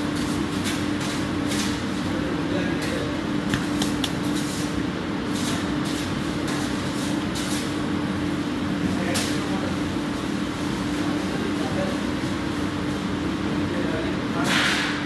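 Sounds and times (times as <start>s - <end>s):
kitchen machinery humming: 0.0s - 14.2s
hands patting dough: 3.4s - 4.4s.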